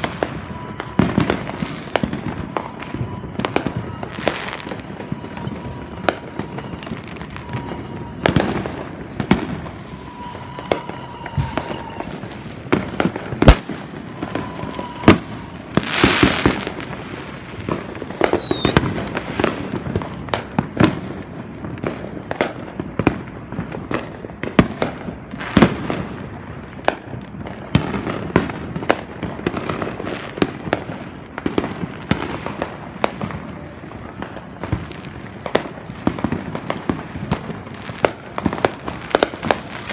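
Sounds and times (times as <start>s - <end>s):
fireworks banging and crackling: 0.0s - 39.9s
short falling whistle: 10.0s - 12.2s, 17.8s - 18.8s
firework hissing burst: 17.8s - 19.0s.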